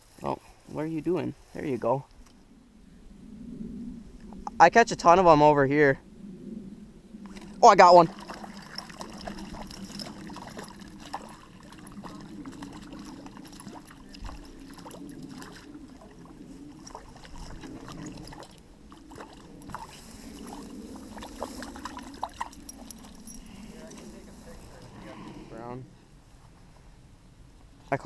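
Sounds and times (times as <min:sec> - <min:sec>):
fish splashing in water: 0:07.3 - 0:23.3.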